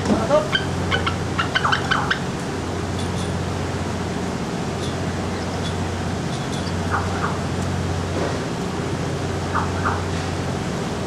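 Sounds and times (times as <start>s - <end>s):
low mechanical hum: 0.0s - 11.0s
eagles squealing calls: 0.4s - 2.3s.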